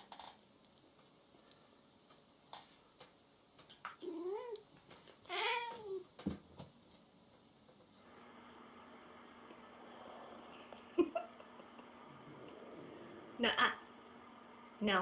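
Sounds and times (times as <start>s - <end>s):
cat meowing: 5.3s - 6.0s.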